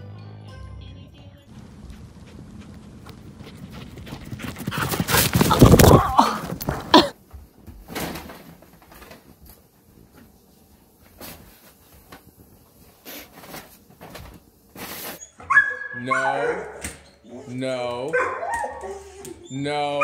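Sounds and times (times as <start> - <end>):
loud rustling scuffle: 1.5 - 9.5
faint rustles of clothes: 6.2 - 15.4.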